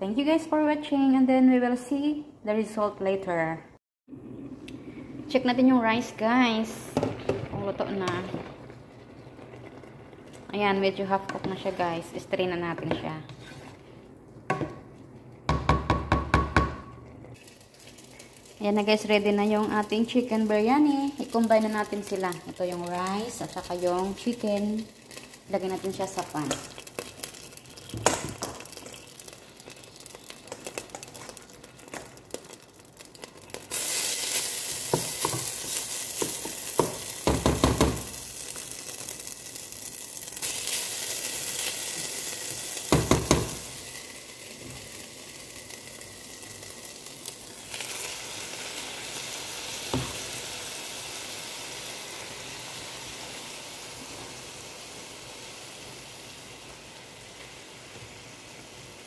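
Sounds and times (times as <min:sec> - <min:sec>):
rice sizzling in hot pan: 0:17.3 - 0:59.0.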